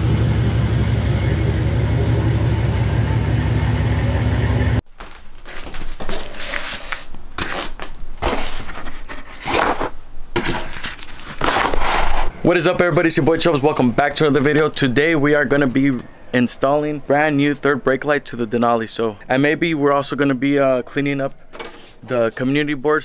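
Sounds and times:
pickup truck engine idling: 0.0s - 4.8s
stickers crinkling and rustling: 5.0s - 12.2s.

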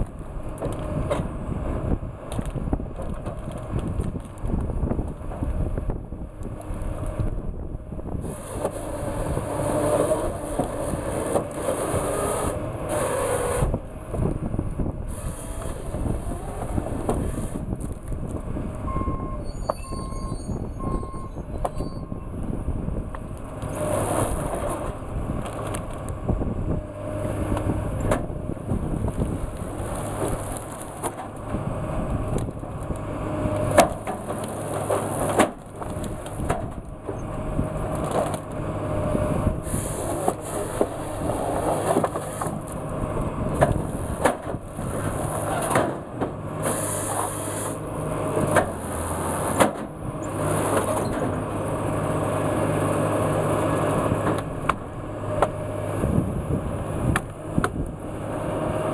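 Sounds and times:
diesel engine and hydraulics: 0.0s - 58.9s
short beeps: 18.9s - 22.2s.

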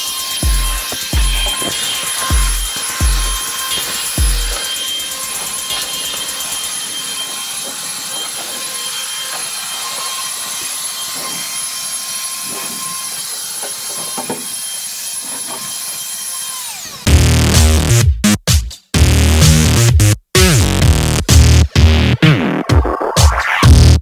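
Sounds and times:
electric blower running: 0.0s - 17.2s.

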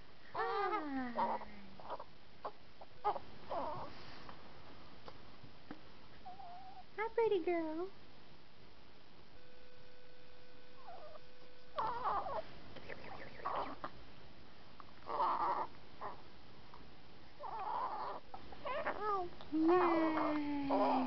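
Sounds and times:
baby cooing: 0.4s - 3.8s, 11.8s - 12.4s, 17.4s - 21.0s.

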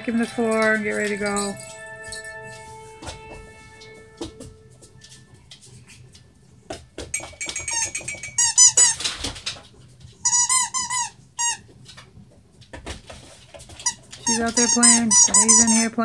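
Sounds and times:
toy knocking on floor: 6.7s - 8.9s
squeaky toy squeaking: 7.6s - 9.0s, 10.2s - 11.6s, 13.8s - 15.9s.

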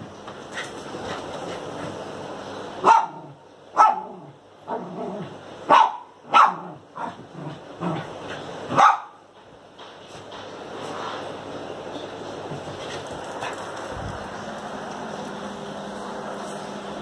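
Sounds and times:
small dog barking: 2.8s - 5.0s, 5.7s - 7.2s, 8.7s - 9.2s.

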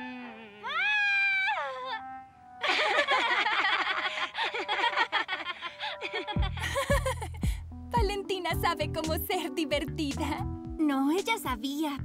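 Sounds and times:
cartoon character wail: 0.0s - 2.0s.

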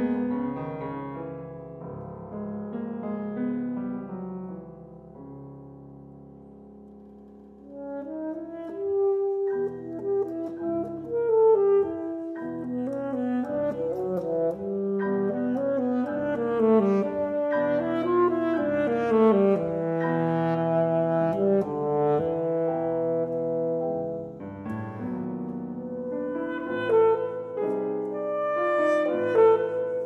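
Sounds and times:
grand piano: 0.0s - 30.0s
alto saxophone: 7.6s - 30.0s.

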